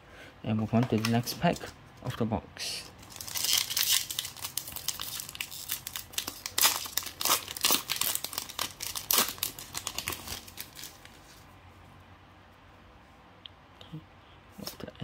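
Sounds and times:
foil wrapper tearing and crinkling: 0:03.0 - 0:11.2.

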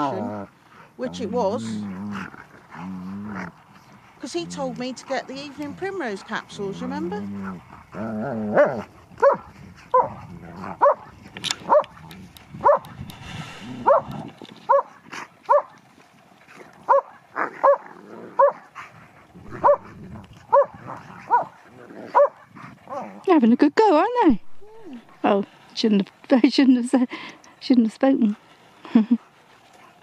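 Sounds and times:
dog barking: 0:09.2 - 0:10.1, 0:10.8 - 0:11.0, 0:11.7 - 0:12.0, 0:12.6 - 0:12.9, 0:13.8 - 0:14.1, 0:14.7 - 0:14.9, 0:15.5 - 0:15.7, 0:16.9 - 0:18.6, 0:19.5 - 0:21.5, 0:22.1 - 0:23.1.

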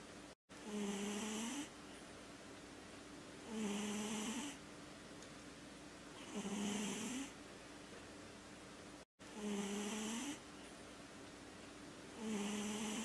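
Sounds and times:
cat snoring: 0:00.6 - 0:01.7, 0:03.4 - 0:04.6, 0:06.2 - 0:07.3, 0:09.3 - 0:10.4, 0:12.2 - 0:13.0.

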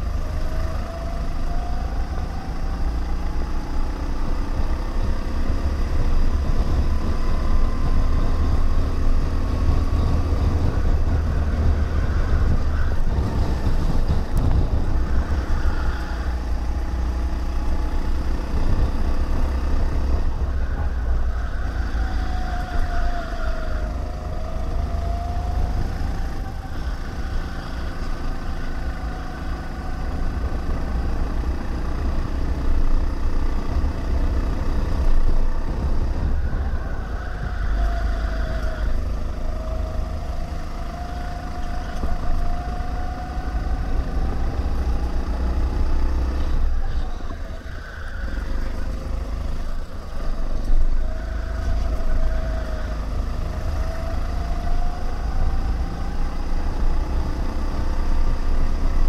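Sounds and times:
go-kart engine racing: 0:00.0 - 0:59.0
heavy low rumble: 0:06.0 - 0:40.5.

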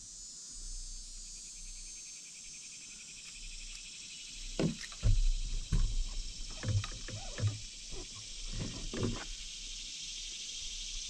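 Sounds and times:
insect chirping: 0:00.0 - 0:11.0
dull knocks and thumps: 0:04.6 - 0:09.4.

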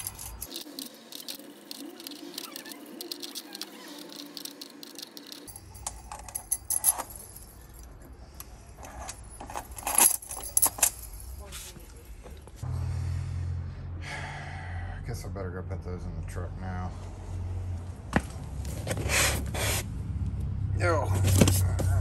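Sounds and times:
metal keys clinking and jangling: 0:00.0 - 0:12.3.

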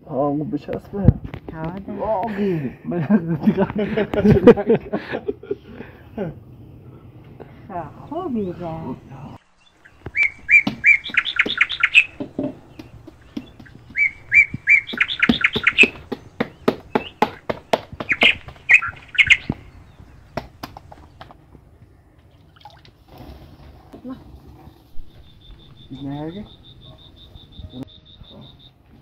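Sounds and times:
small songbird chirping: 0:07.7 - 0:21.3, 0:24.9 - 0:29.0.

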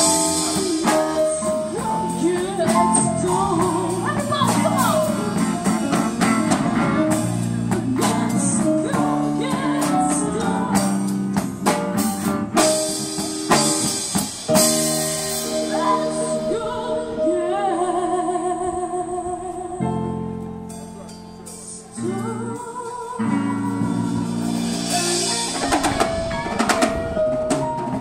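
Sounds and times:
woman singing: 0:00.0 - 0:06.0, 0:07.5 - 0:11.4, 0:15.4 - 0:20.4, 0:21.7 - 0:26.0
drum and cymbal hits: 0:00.0 - 0:16.4, 0:23.7 - 0:28.0
electric guitar: 0:00.0 - 0:28.0.

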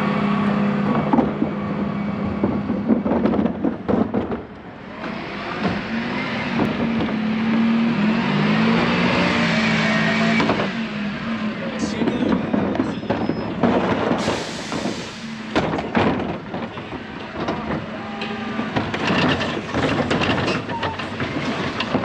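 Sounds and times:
knocks and rattles: 0:02.2 - 0:06.0, 0:11.8 - 0:14.9, 0:15.5 - 0:22.0.

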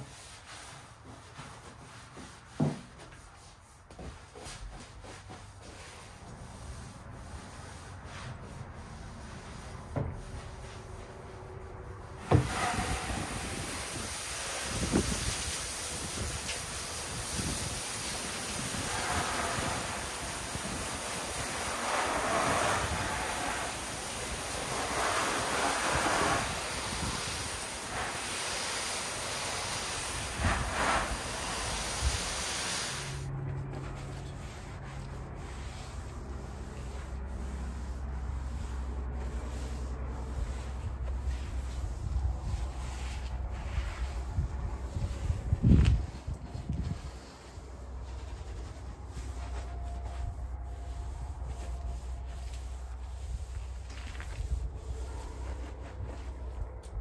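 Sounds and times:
brush scrubbing wet siding: 0:00.0 - 0:57.0
knock: 0:02.6 - 0:02.9
water spraying onto siding: 0:12.2 - 0:33.3.

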